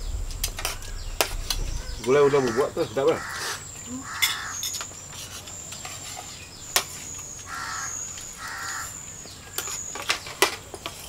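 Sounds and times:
high thin whine: 0:00.0 - 0:03.3
crow cawing: 0:00.9 - 0:04.7, 0:07.5 - 0:09.0.

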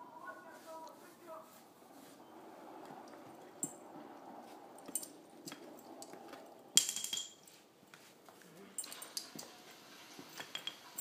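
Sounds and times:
clattering clink with ring: 0:04.8 - 0:06.1, 0:06.7 - 0:07.6, 0:08.8 - 0:09.6, 0:10.4 - 0:11.0.

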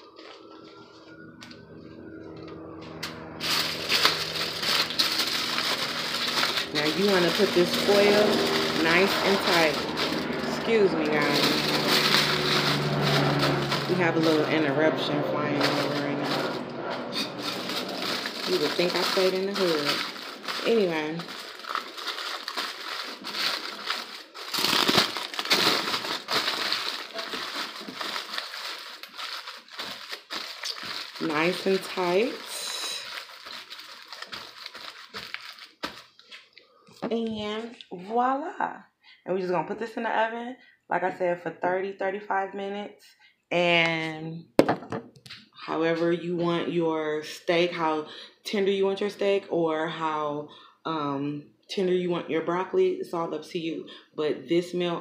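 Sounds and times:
steady low drone: 0:00.0 - 0:28.4
aluminium foil crinkling: 0:02.6 - 0:36.9.

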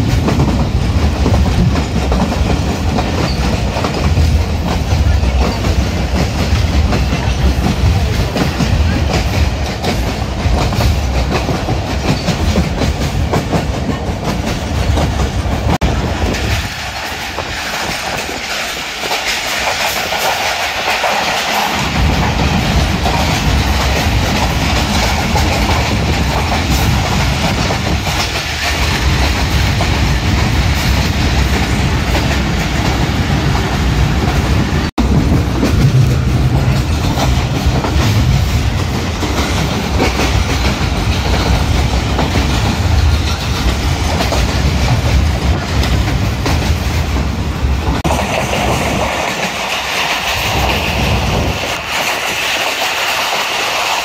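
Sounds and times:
deep train rumble: 0:00.0 - 0:54.0
train wheels clicking over rail joints: 0:00.0 - 0:54.0.

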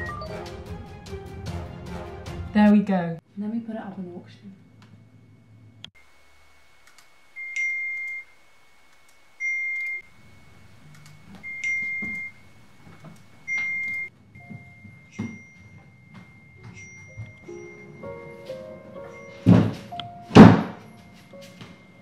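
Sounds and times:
music: 0:00.0 - 0:02.9, 0:16.5 - 0:22.0
soft footsteps: 0:10.5 - 0:22.0.

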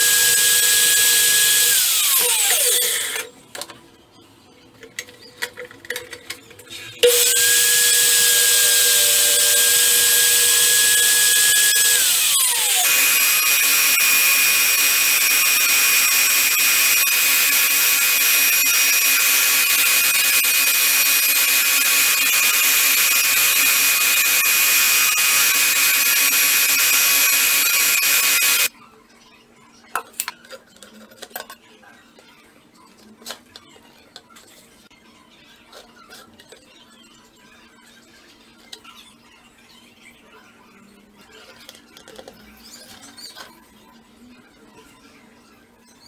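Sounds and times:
miter saw motor whining: 0:00.0 - 0:03.3, 0:07.0 - 0:28.7.

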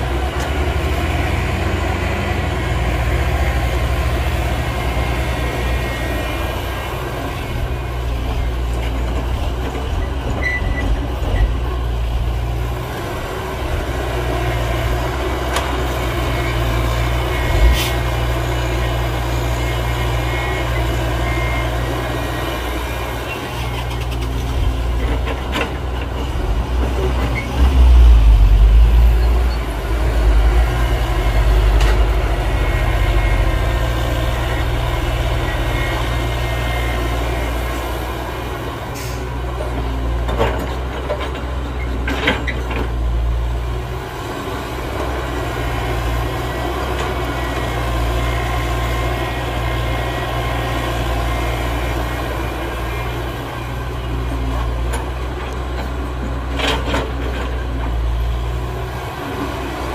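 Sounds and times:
diesel machinery engine drone: 0:00.0 - 0:59.9.

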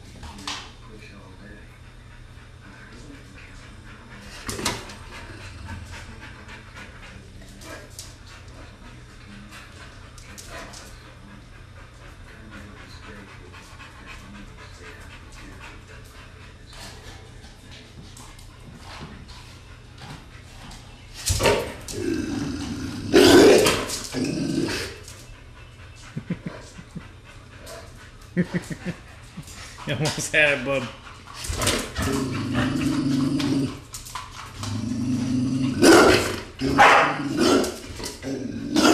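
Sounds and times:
dog panting: 0:00.0 - 0:23.1, 0:24.8 - 0:33.0
dog growling: 0:01.7 - 0:07.9, 0:21.3 - 0:25.2, 0:28.4 - 0:38.9
dog barking: 0:35.8 - 0:37.7.

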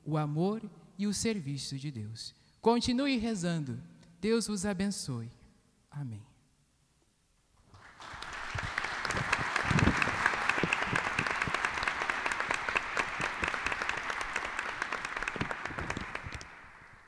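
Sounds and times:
crowd applauding: 0:07.7 - 0:17.0.

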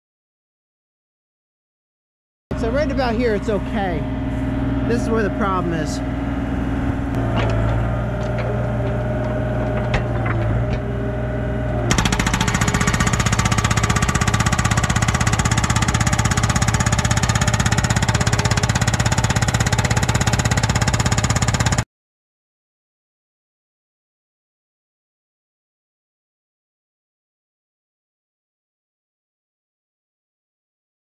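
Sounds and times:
mini excavator running: 0:02.5 - 0:21.8
hydraulic hammer pounding rock: 0:07.1 - 0:11.0, 0:11.8 - 0:21.8.

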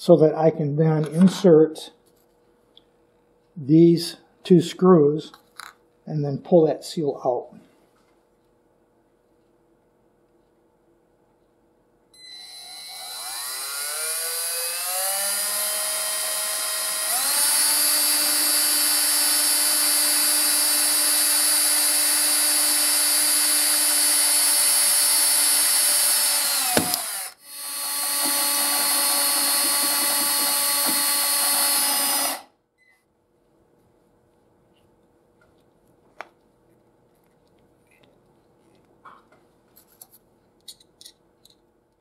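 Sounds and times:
cordless drill motor whine: 0:12.2 - 0:32.5.

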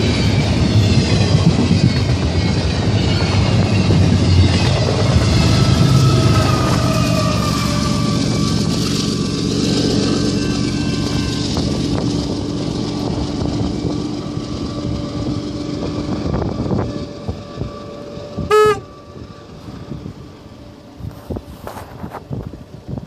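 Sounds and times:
freight train rumbling past: 0:00.0 - 0:23.0
wind buffeting microphone: 0:00.0 - 0:23.0
train horn toot: 0:16.2 - 0:20.0.

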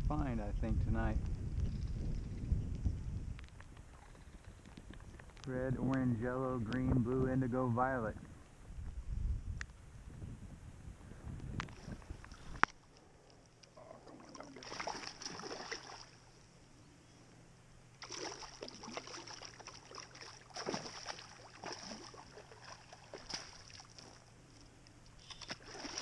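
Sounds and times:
wind rumble on microphone: 0:00.0 - 0:12.7
fish splashing in water: 0:14.0 - 0:16.2, 0:18.0 - 0:24.3, 0:25.2 - 0:26.0.

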